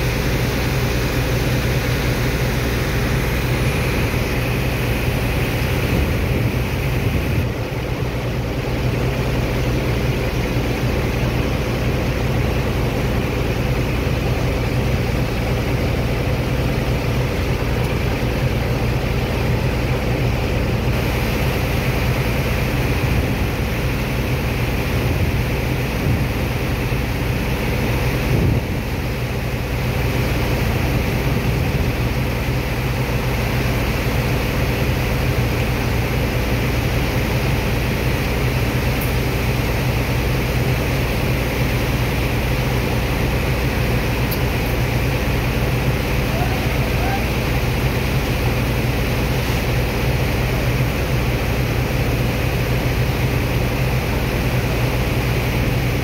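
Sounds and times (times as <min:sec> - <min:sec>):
pump machinery humming: 0:00.0 - 0:56.0.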